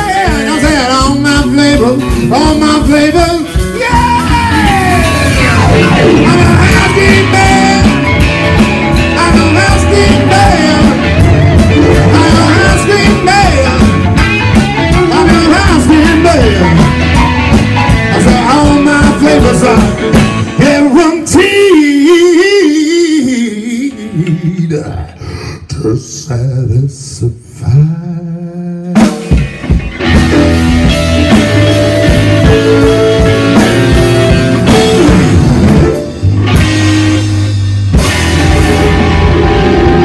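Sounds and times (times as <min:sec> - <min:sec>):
blues-rock band playing: 0:00.0 - 0:24.7, 0:28.8 - 0:40.0
downward pitch slide: 0:04.2 - 0:08.3.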